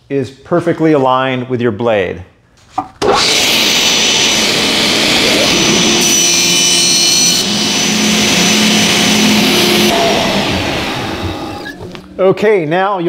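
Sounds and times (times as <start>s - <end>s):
table saw whining: 3.0s - 12.2s
saw cutting wood hiss: 3.2s - 11.8s.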